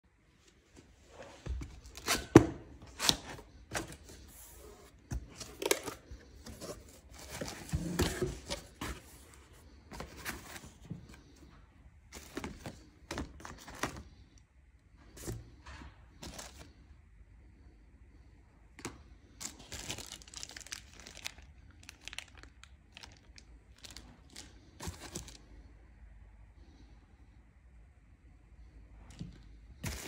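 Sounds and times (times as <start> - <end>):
cardboard box being unpacked: 1.5 - 11.0.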